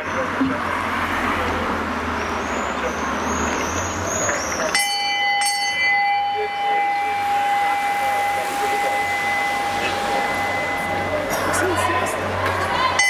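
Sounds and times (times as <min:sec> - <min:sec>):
crowd murmur: 0:00.0 - 0:13.0
cyclists passing: 0:00.0 - 0:13.0
street noise: 0:00.0 - 0:13.0
steady high-pitched tone: 0:04.7 - 0:13.0.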